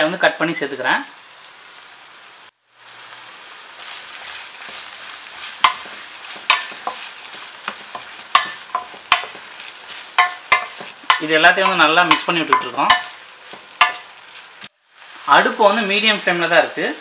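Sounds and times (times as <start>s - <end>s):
onions sizzling in oil: 0.0s - 17.0s
spatula knocking and scraping pot: 4.2s - 14.2s.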